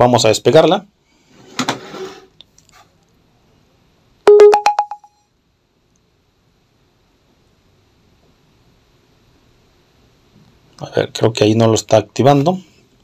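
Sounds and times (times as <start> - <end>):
rising electronic beep: 4.3 - 5.1.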